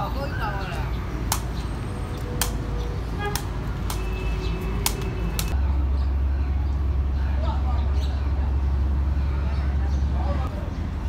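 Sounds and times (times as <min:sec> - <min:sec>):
ball kicked with sharp taps: 0:03.3 - 0:04.1, 0:04.8 - 0:05.6.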